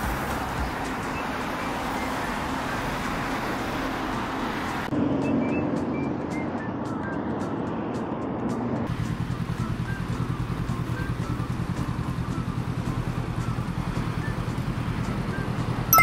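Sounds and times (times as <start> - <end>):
city traffic: 0.0 - 16.0
motorcycle engine idling: 8.9 - 15.6.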